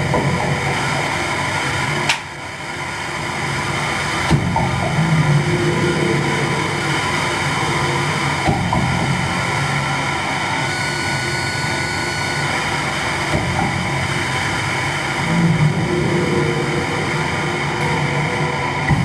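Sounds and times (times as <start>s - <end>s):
dense electronic noise: 0.0s - 19.0s.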